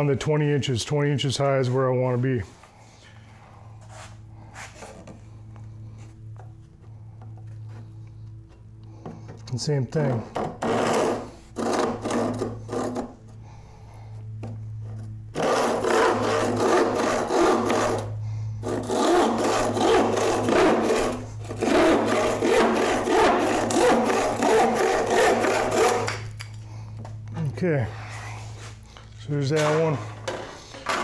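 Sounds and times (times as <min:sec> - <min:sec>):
hand saw cutting wood: 0:10.0 - 0:13.2, 0:14.9 - 0:26.4.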